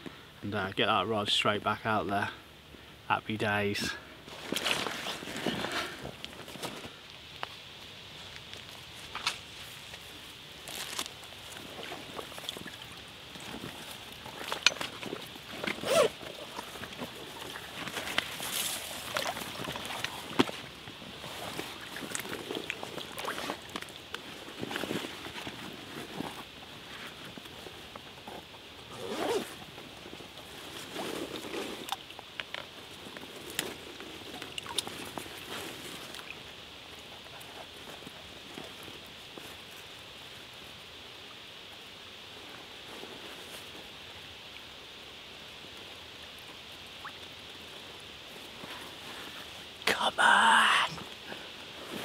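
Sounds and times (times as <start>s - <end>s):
wet fish sling rustling: 8.4s - 27.6s
water sloshing and dripping: 10.7s - 25.6s.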